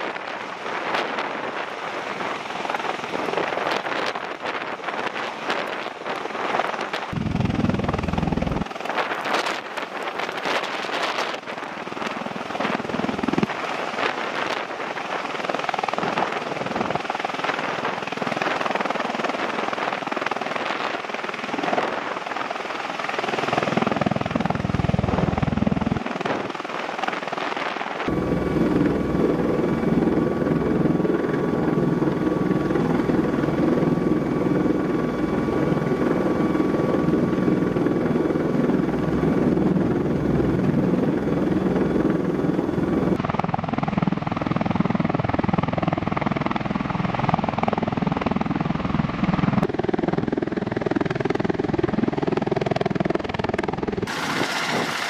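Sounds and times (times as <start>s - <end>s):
tiltrotor aircraft hovering: 0.0s - 55.0s
cabin drone: 7.2s - 8.6s
high steady whine: 7.2s - 8.7s.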